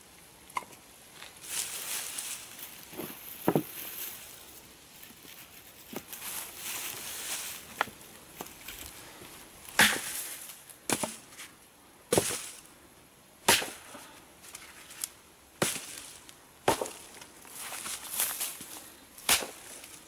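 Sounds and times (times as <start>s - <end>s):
branches knocking on wood pile: 2.9s - 4.1s, 9.7s - 11.5s, 12.1s - 12.6s, 13.5s - 20.0s.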